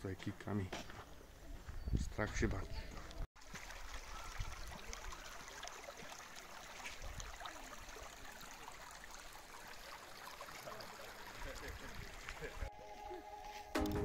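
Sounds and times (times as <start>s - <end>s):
stream water rushing: 3.4s - 12.6s.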